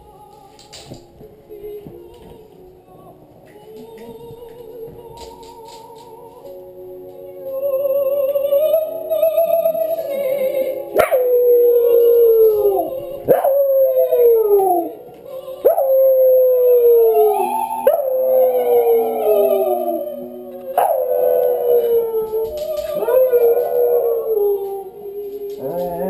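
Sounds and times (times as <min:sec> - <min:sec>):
recorded operatic singing: 0:00.0 - 0:26.0
dog howling: 0:07.5 - 0:26.0.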